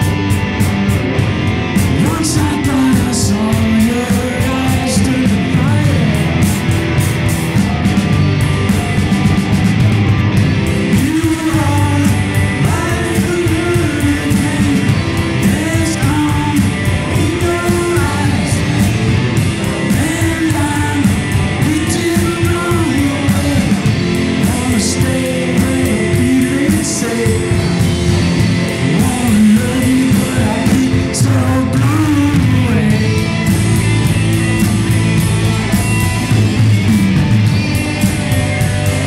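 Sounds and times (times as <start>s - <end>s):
bass guitar: 0.0s - 39.0s
drums: 0.0s - 39.0s
electric guitars: 0.0s - 39.0s
male lead vocal: 1.8s - 6.6s, 10.7s - 33.9s.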